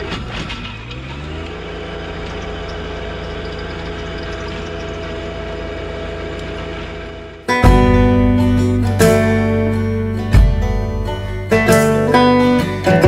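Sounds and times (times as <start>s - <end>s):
rototiller through soil: 0.0s - 7.5s
tractor diesel engine under load: 0.0s - 13.0s.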